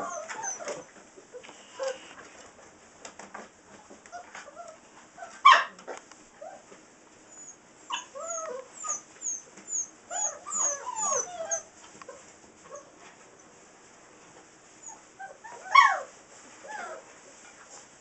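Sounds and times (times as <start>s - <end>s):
puppy yelp: 0.0s - 2.1s, 4.1s - 6.6s, 7.3s - 12.9s, 14.8s - 17.0s
puppies whining and squealing: 0.0s - 2.2s, 7.3s - 12.9s, 14.8s - 17.1s.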